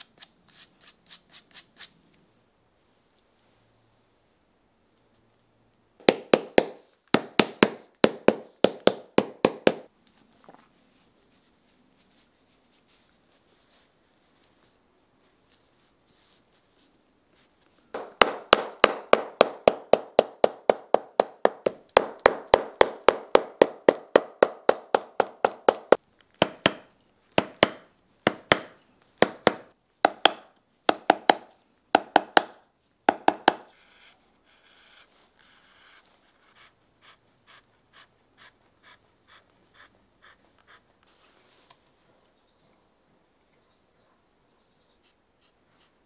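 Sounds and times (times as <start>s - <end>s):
hammer striking leather: 6.0s - 9.9s, 18.0s - 33.7s.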